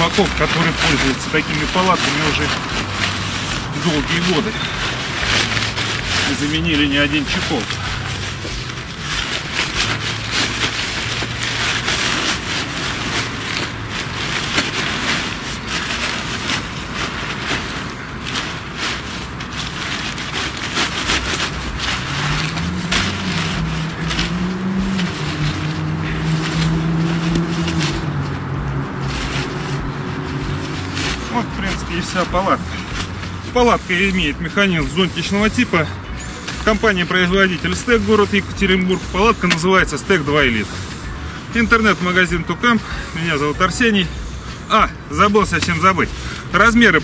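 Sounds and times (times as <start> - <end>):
fabric rustling and scraping: 0.0 - 47.0
low motor drone: 21.1 - 39.4.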